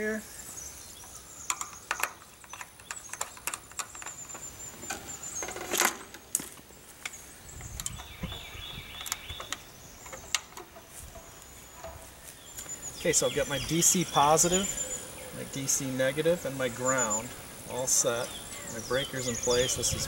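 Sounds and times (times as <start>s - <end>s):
clicks and rattles on metal box: 1.5s - 6.2s.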